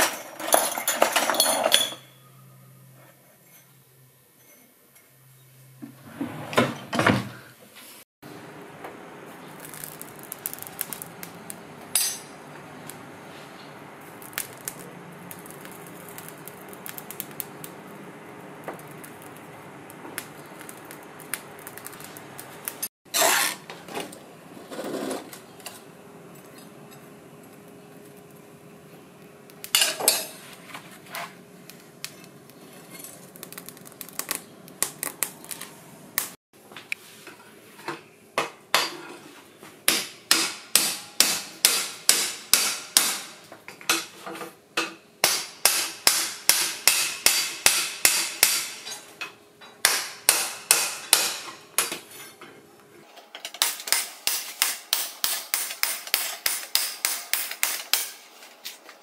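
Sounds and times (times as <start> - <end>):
hammer striking metal: 11.9 - 12.4, 39.9 - 44.1, 44.8 - 49.0, 49.6 - 52.0, 53.5 - 58.2.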